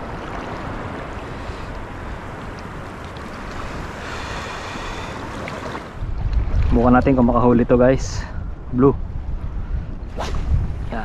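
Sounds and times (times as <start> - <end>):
sea water lapping and sloshing: 0.0 - 11.0
wind buffeting microphone: 0.0 - 11.0.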